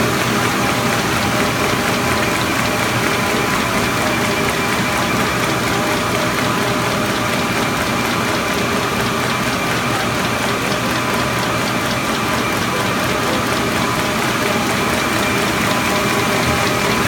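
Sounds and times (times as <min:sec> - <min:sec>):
machine clatter: 0:00.0 - 0:17.0
rapid ticking: 0:00.0 - 0:17.0.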